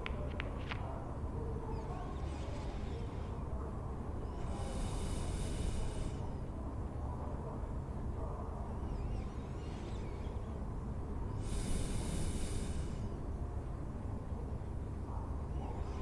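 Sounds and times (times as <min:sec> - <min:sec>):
low room rumble: 0:00.0 - 0:16.0
sleeping person breathing: 0:04.2 - 0:06.5, 0:11.3 - 0:13.2.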